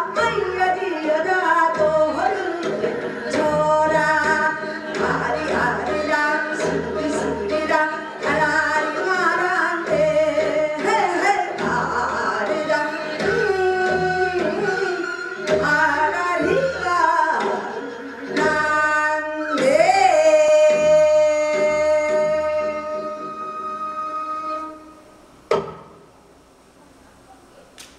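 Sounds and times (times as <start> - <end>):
woman singing folk song: 0.0 - 17.8, 18.4 - 24.8.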